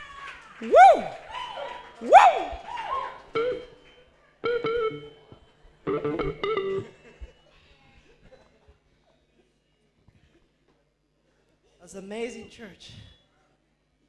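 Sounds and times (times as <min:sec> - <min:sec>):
short pitched musical notes: 0:03.3 - 0:03.8, 0:04.4 - 0:05.2, 0:05.9 - 0:07.0.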